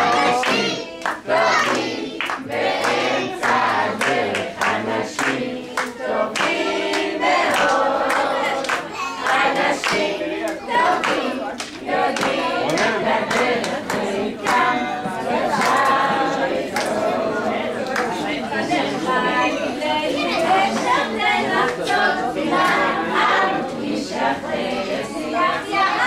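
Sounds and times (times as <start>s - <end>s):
hands clapping: 0.0s - 17.2s, 17.8s - 18.4s
group singing: 0.0s - 26.0s.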